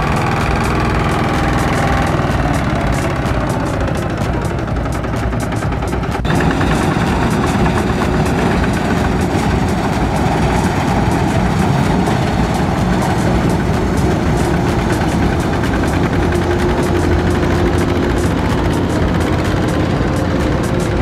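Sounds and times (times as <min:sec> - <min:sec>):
combine harvester diesel engine: 0:00.0 - 0:21.0
two-wheel tractor engine: 0:00.0 - 0:21.0.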